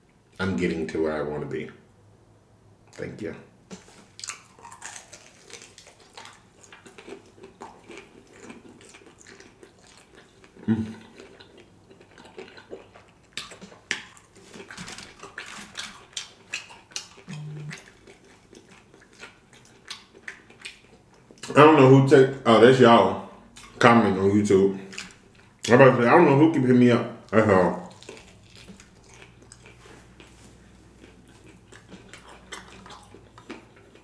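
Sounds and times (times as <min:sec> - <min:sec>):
crunchy chewing: 0:03.7 - 0:21.6, 0:24.8 - 0:25.8, 0:27.2 - 0:34.0
person humming mm: 0:10.6 - 0:11.0, 0:17.3 - 0:17.8.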